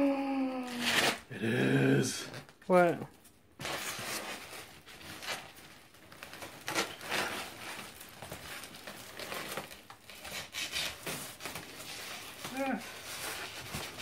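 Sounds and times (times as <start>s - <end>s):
plastic wrap crinkling: 3.2s - 14.0s
foam box rustling and scraping: 3.6s - 14.0s.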